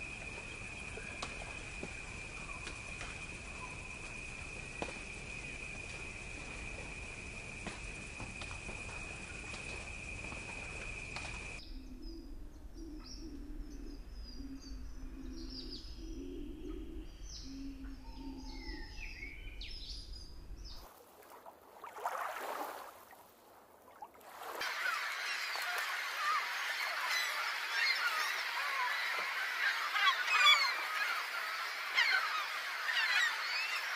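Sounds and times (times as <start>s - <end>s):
dense bird chorus: 24.6s - 33.9s.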